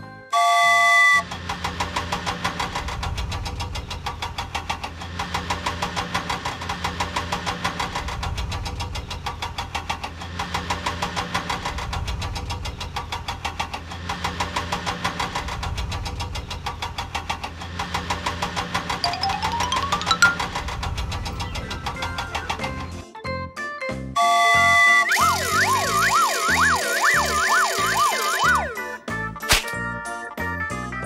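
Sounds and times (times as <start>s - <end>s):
engine knocking rattle: 1.2s - 19.0s.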